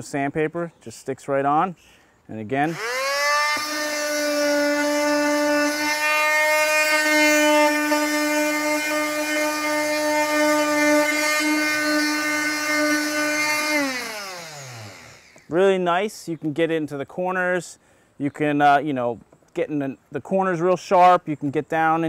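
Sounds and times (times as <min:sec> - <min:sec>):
oscillating tool sanding wood: 0:02.7 - 0:15.6.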